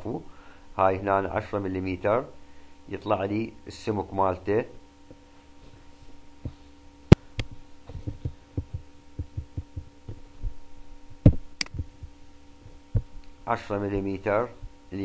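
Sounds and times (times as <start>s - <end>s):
electrical hum: 0.0s - 15.0s
sharp click: 11.3s - 11.8s.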